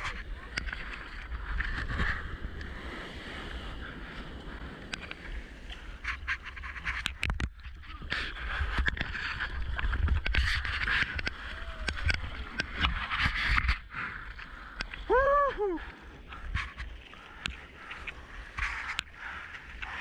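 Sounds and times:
paddle slapping water: 0:00.0 - 0:20.0.

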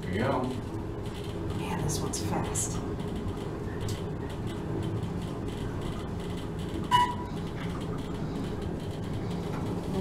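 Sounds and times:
elevator rumble and hum: 0:00.0 - 0:10.0
short beep: 0:06.9 - 0:07.3.

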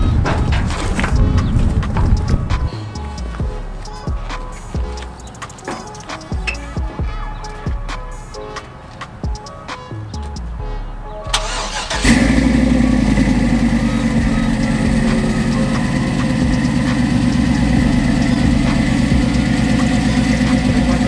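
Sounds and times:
pickup engine starting and idling: 0:11.3 - 0:21.0.

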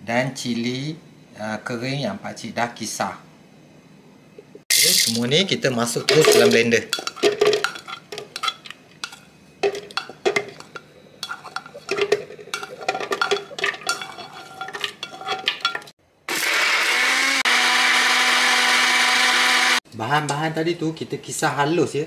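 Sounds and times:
electric blender grinding: 0:16.3 - 0:19.8.

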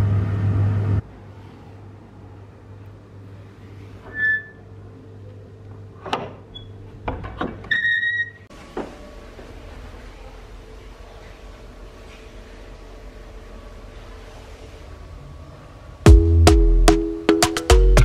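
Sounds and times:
short squeaks: 0:04.0 - 0:04.7, 0:06.5 - 0:06.8, 0:07.6 - 0:08.5.

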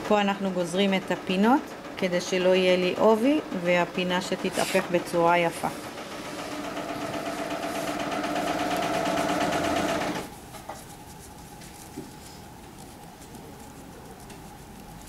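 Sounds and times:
sewing machine running: 0:04.8 - 0:10.3.

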